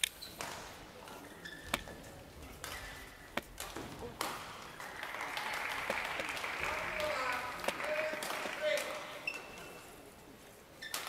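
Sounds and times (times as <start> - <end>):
shoes squeaking on court: 0.1 - 3.8, 9.1 - 10.0, 10.7 - 11.0
racket striking shuttlecock: 2.6 - 4.6
crowd applause: 4.7 - 9.2.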